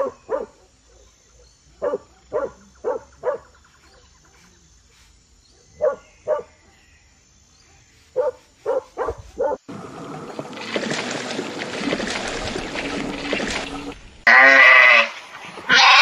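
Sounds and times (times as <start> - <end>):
dog barking: 0.0 - 4.0, 5.5 - 6.9, 7.6 - 9.6.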